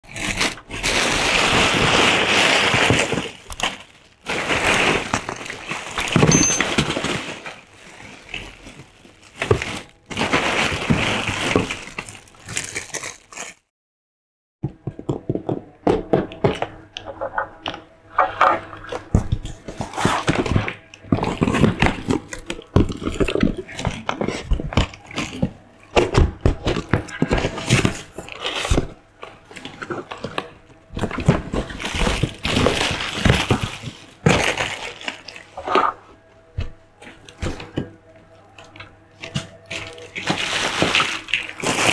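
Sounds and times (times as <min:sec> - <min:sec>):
plastic packets crinkling: 0:00.0 - 0:13.7, 0:26.8 - 0:36.1, 0:38.6 - 0:41.9.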